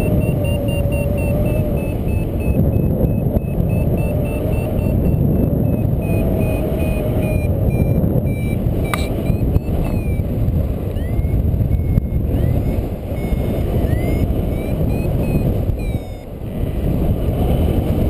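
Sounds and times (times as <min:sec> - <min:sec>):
variometer beeping: 0:00.0 - 0:16.4
wind rushing over microphone: 0:00.0 - 0:18.0
sharp click: 0:08.9 - 0:09.2.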